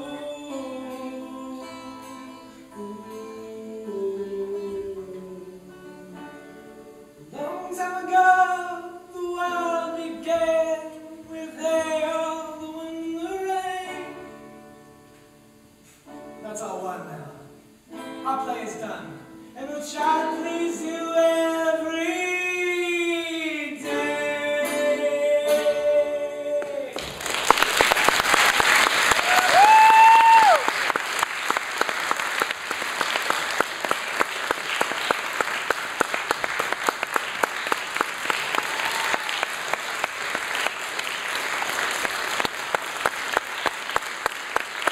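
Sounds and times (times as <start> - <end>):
person singing: 0.0 - 14.4, 19.5 - 27.2
guitar: 0.0 - 31.5
audience applause and cheering: 26.6 - 44.9
person whooping: 29.1 - 30.8, 38.5 - 39.5.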